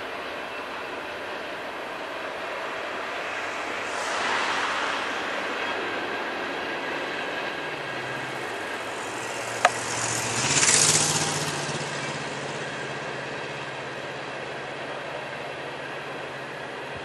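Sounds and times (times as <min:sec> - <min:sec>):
train cars rumbling and rattling: 0:00.0 - 0:17.0
hissing noise: 0:02.2 - 0:10.8.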